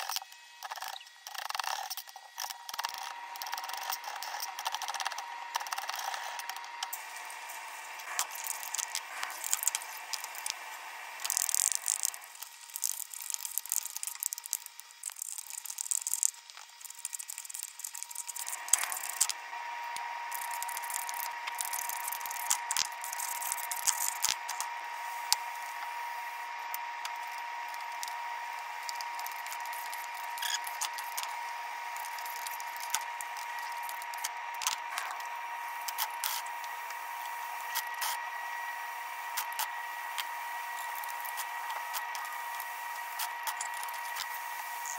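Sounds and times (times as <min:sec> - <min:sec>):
faint steady whine: 0:00.0 - 0:44.9.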